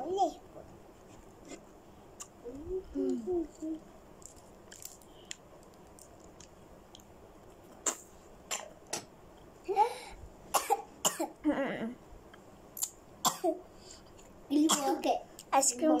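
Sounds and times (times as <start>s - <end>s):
person coughing and throat-clearing: 7.8s - 8.7s, 10.5s - 11.4s, 13.2s - 13.6s, 14.7s - 15.0s.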